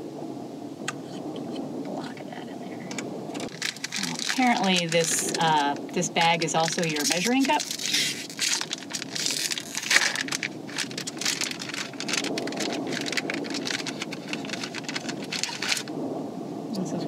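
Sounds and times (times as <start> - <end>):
steady low rushing noise: 0.0 - 17.0
plastic wrapper crinkling: 2.9 - 16.0.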